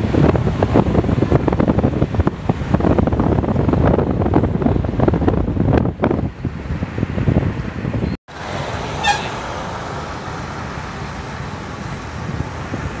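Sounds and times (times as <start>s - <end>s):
road and tyre noise: 0.0s - 13.0s
wind buffeting microphone: 0.0s - 13.0s
short car horn toot: 9.0s - 9.4s.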